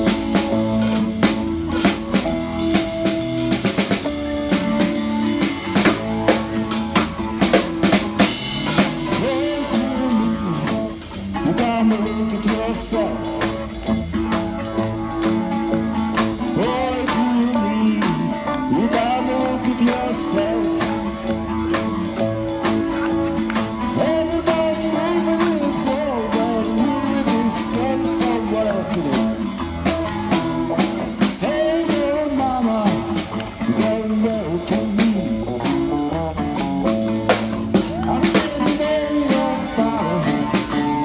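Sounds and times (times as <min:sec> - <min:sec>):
live rock band playing: 0:00.0 - 0:41.0
man singing lead vocal: 0:08.8 - 0:13.8, 0:16.2 - 0:21.5, 0:22.7 - 0:29.6, 0:31.1 - 0:36.2, 0:37.7 - 0:41.0.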